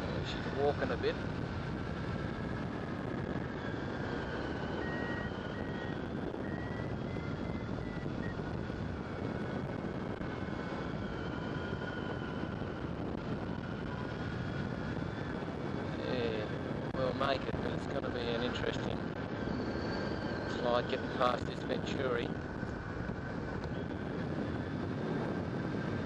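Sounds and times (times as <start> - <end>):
faint thin whistling: 4.7 - 8.4.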